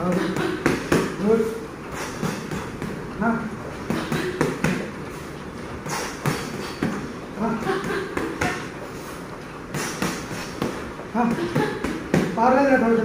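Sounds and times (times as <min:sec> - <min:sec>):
boxing gloves slapping: 0:02.0 - 0:03.0, 0:03.9 - 0:05.0, 0:05.9 - 0:07.1, 0:09.8 - 0:12.4.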